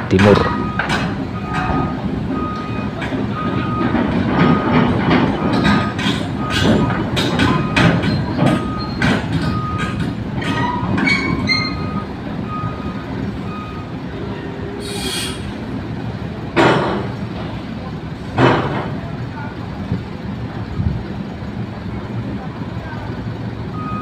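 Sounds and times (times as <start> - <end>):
excavator engine rumbling: 0.0 - 24.0
steel tracks clanking: 0.0 - 24.0
travel alarm beeping: 0.3 - 10.0, 10.6 - 15.4, 23.7 - 24.0
short hiss: 14.8 - 15.5.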